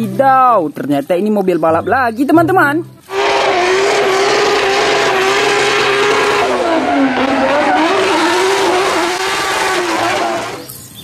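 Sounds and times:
car engine at high revs: 3.1 - 10.7
tyres spinning: 3.1 - 10.7.

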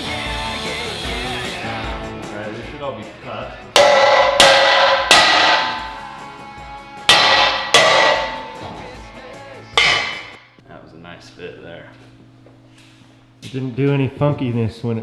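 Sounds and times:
hammer striking steel tube: 3.8 - 6.2, 7.1 - 8.8, 9.8 - 10.4.

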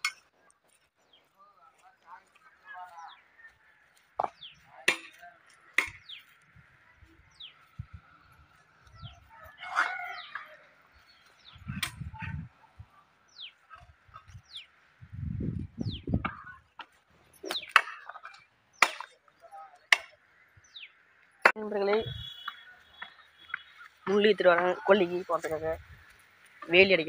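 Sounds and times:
bird chirps: 0.6 - 14.8, 15.8 - 21.0, 21.7 - 25.3
rooster crowing: 9.2 - 10.8.

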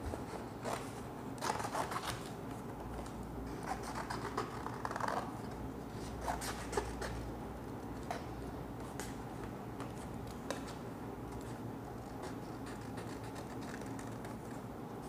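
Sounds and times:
scissors snipping paper: 11.4 - 14.6.

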